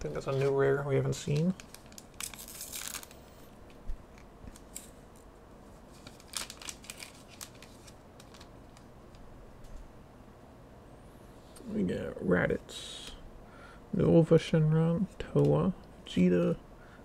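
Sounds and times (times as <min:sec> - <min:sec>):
trading cards snapping and rustling: 0:01.2 - 0:03.2, 0:06.0 - 0:08.9.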